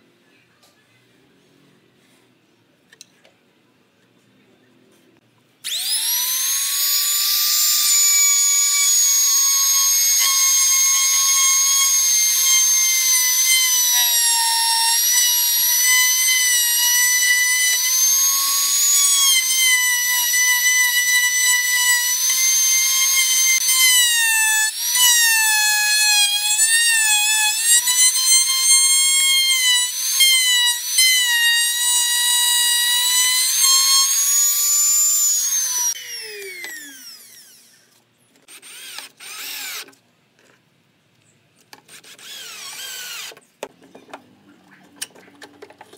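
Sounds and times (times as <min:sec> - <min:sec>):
trim router whining: 0:05.6 - 0:40.0.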